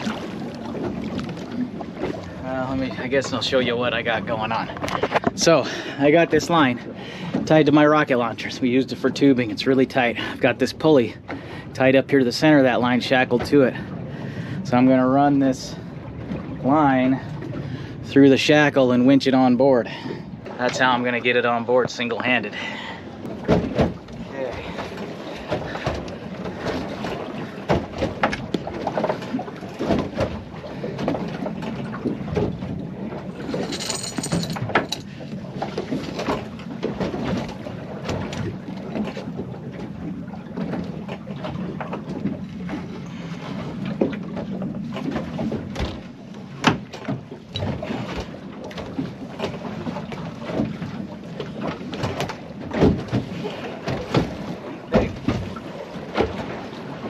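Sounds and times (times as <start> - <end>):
water washing: 0.0 - 57.0
wind: 0.0 - 57.0
knocks on fibreglass boat: 23.3 - 24.1, 27.6 - 29.1, 51.6 - 56.5.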